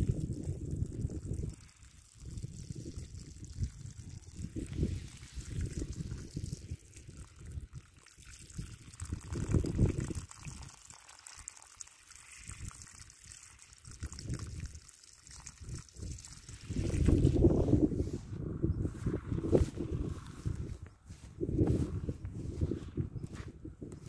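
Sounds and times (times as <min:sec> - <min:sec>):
water pouring onto wet grass: 0:00.0 - 0:18.2, 0:18.9 - 0:23.4
low microphone rumbles: 0:16.0 - 0:24.0.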